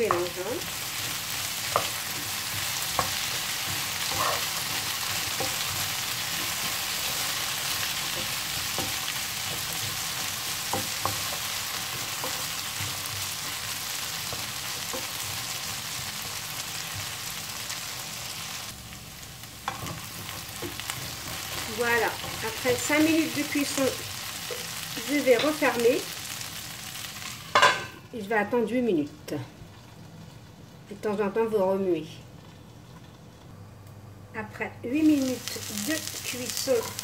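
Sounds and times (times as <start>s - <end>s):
wooden spatula scraping pan: 0.0s - 15.4s
potatoes sizzling in frying pan: 0.0s - 31.9s, 34.9s - 37.0s.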